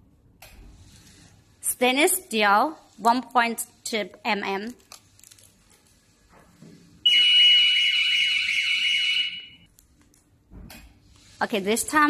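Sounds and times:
high-pitched warbling alarm tone: 7.1 - 9.6.

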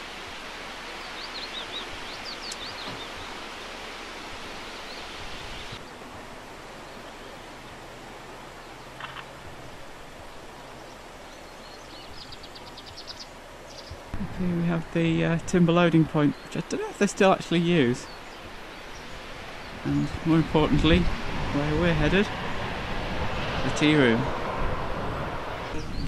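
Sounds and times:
outdoor background hiss: 0.0 - 26.0
small birds chirping: 0.9 - 3.8, 4.6 - 6.0, 10.7 - 14.6, 15.9 - 20.9, 25.7 - 26.0.

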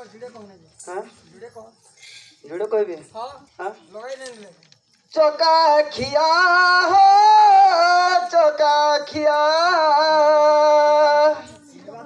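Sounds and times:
person singing a folk song: 5.0 - 12.0.

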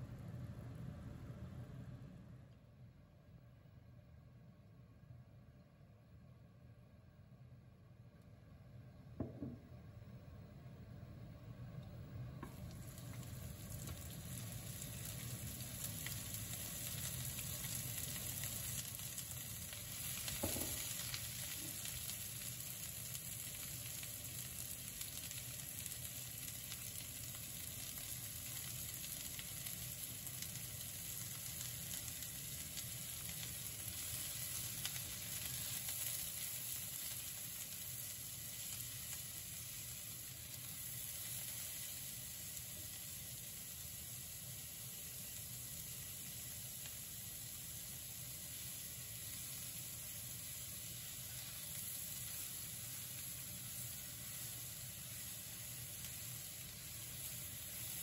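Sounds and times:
onions sizzling in frying pan: 12.4 - 58.0.

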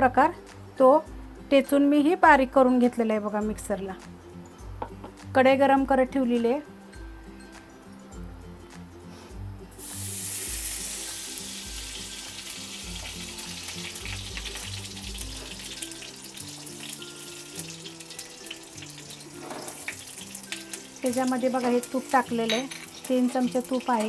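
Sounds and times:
background music: 0.0 - 24.0
ghee sizzling: 9.7 - 24.0.

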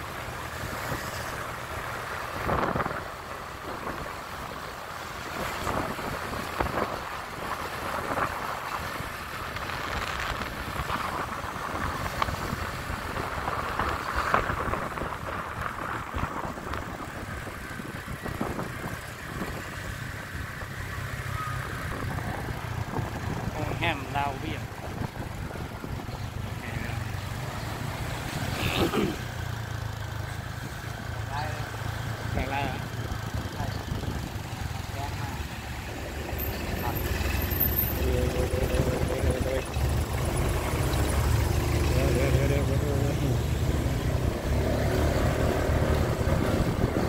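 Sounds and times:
passing traffic: 0.0 - 47.0
wind buffeting microphone: 21.6 - 23.9, 24.6 - 26.6, 45.6 - 47.0.

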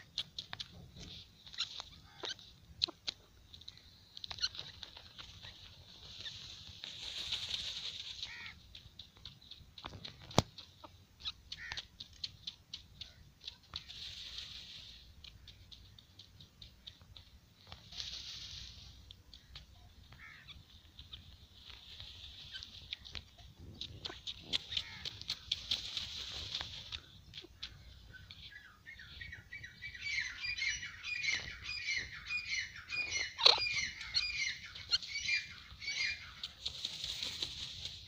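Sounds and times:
birds fluttering wings in sand: 0.0 - 28.8, 30.5 - 38.0
grit ticking: 6.8 - 14.4, 15.0 - 17.9, 18.9 - 28.7.

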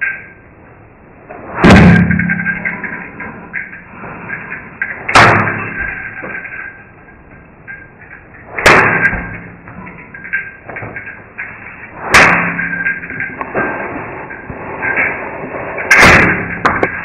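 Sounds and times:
loud heavy bangs: 1.5 - 3.6, 5.0 - 6.2, 8.5 - 10.3, 12.0 - 13.4, 15.8 - 17.0.

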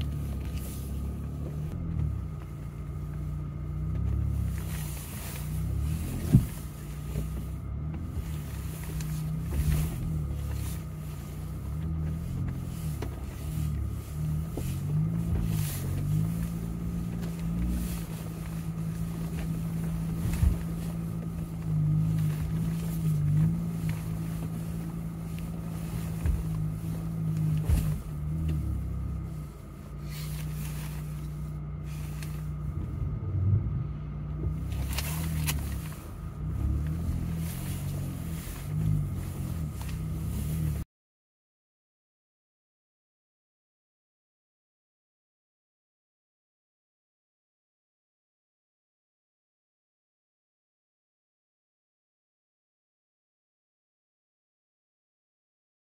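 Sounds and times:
engine running at low revs: 0.0 - 40.8.

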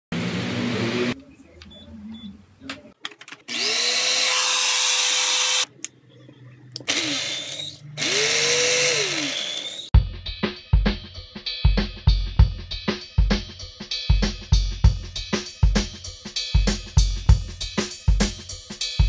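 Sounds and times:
electric blender motor whine: 3.5 - 5.7, 6.9 - 9.9.

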